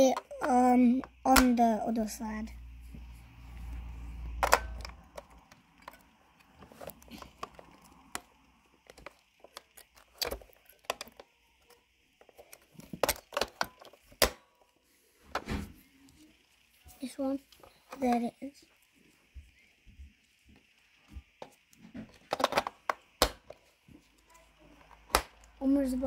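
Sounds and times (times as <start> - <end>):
batteries clicking into plastic: 4.2 - 14.4, 21.2 - 23.6.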